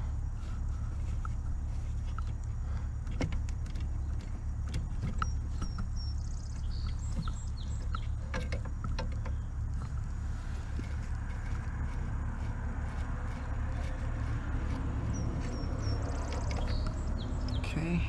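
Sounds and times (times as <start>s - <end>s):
steady low rumble: 0.0s - 18.0s
small metallic clicks and taps: 2.1s - 10.2s
bird chirping: 3.8s - 12.0s, 12.9s - 18.0s.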